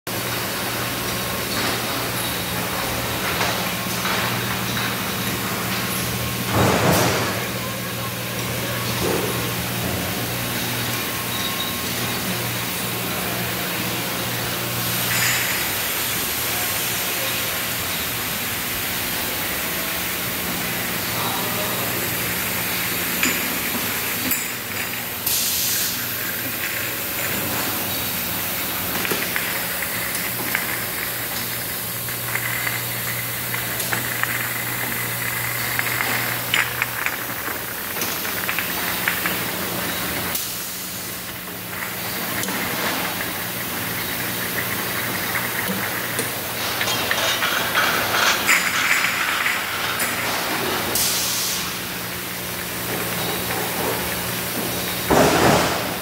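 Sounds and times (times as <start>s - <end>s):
low mechanical hum: 0.1s - 56.0s
machinery hiss: 11.8s - 56.0s.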